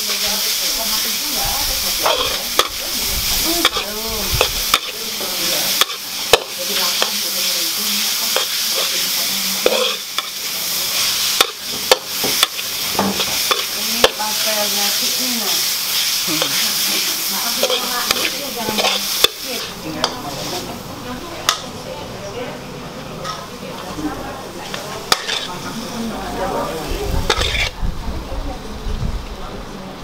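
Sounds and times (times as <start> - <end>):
noodles sizzling in a wok: 0.0 - 27.9
metal spatula scraping a wok: 1.9 - 20.6, 24.8 - 25.9, 27.2 - 27.8.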